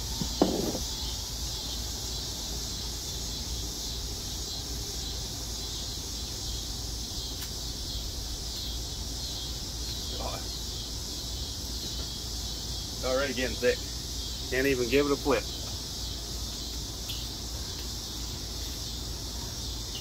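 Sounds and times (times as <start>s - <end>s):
insects chirping: 0.0s - 20.0s.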